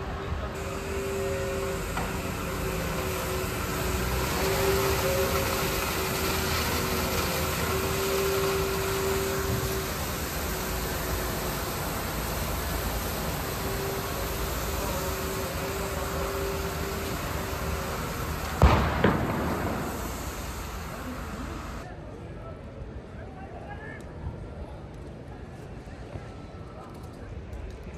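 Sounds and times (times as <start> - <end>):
high-pressure liquid jets hissing: 0.6 - 21.8
whining tone: 0.6 - 21.8
sharp bangs: 18.5 - 21.8.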